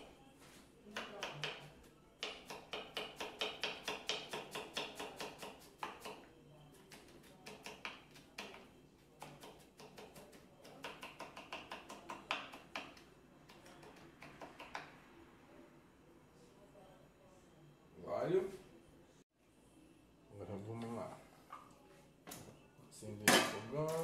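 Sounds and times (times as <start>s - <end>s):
knife chopping on wooden board: 1.0s - 6.2s.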